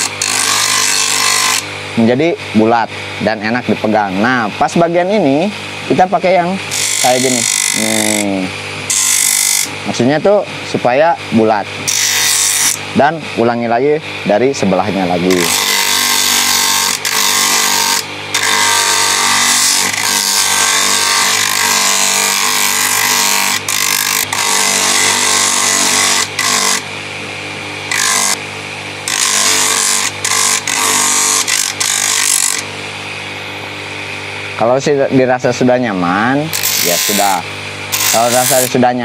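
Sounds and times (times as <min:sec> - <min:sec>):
bench grinder motor humming: 0:00.0 - 0:01.8, 0:06.7 - 0:09.8, 0:11.8 - 0:12.9, 0:15.2 - 0:26.9, 0:27.8 - 0:33.3, 0:36.5 - 0:38.8
wood grinding hiss: 0:06.7 - 0:09.7, 0:27.9 - 0:28.4, 0:29.0 - 0:32.7, 0:36.5 - 0:38.8.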